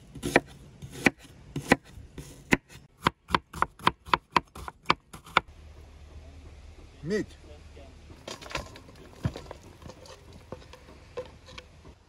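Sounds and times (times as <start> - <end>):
knife chopping on wooden board: 0.1 - 5.4.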